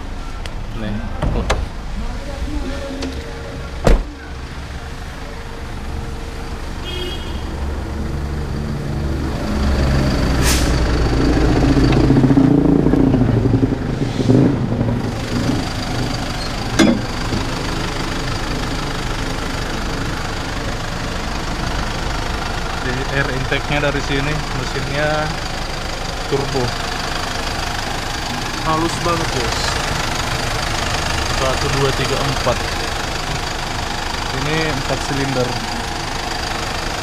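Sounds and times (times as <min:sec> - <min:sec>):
diesel engine idling: 0:00.0 - 0:37.0
sharp knocks: 0:16.7 - 0:17.6.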